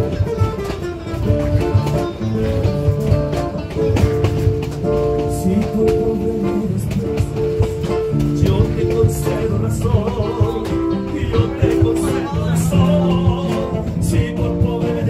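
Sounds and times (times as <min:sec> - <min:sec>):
acoustic guitar music: 0:00.0 - 0:15.0
person singing: 0:04.9 - 0:15.0.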